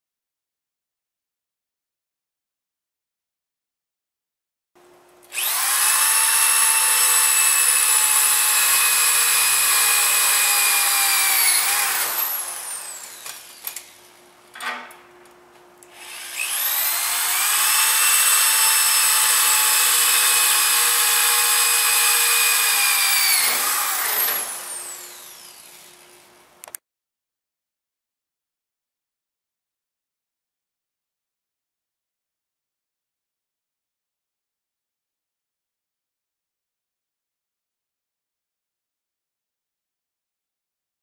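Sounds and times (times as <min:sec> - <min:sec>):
electric drill drilling steel: 0:05.3 - 0:14.1, 0:15.9 - 0:26.1.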